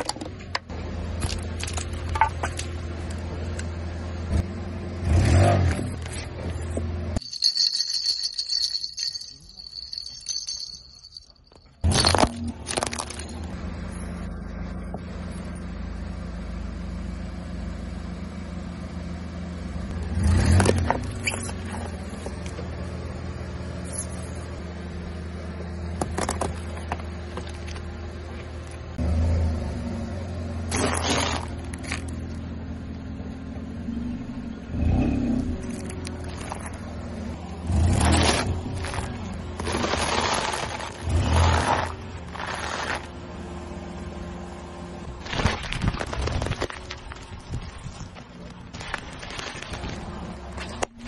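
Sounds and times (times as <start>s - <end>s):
car engine running at low speed: 0.0s - 51.0s
plastic toys cracking and crunching: 11.8s - 13.4s, 38.1s - 43.1s, 45.2s - 50.9s.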